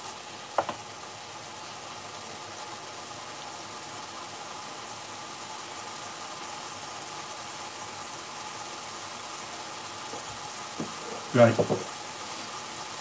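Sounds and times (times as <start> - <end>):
sauce bubbling and sizzling in a pan: 0.0 - 13.0.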